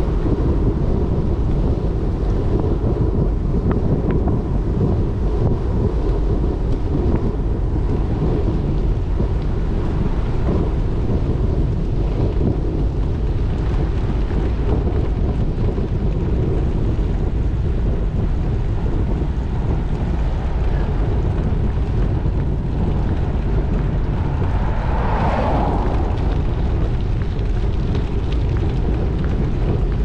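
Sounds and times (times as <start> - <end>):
wind buffeting microphone: 0.0 - 30.0
tyres rolling on pavement: 6.0 - 30.0.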